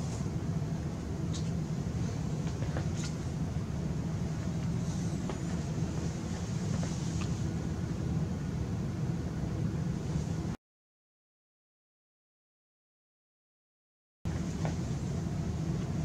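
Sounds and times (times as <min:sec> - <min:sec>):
low room hum with hiss: 0:00.0 - 0:10.6, 0:14.3 - 0:16.0.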